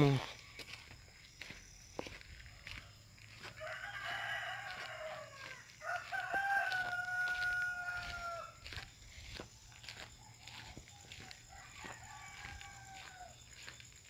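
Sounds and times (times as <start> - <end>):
footsteps on dirt: 0.0 - 14.0
rooster crowing: 2.6 - 8.9, 9.9 - 13.7.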